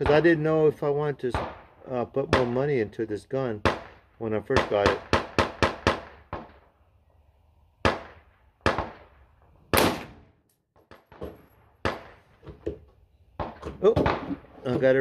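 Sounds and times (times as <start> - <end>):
rifle shots: 1.3 - 2.8, 3.6 - 6.6, 7.8 - 12.3.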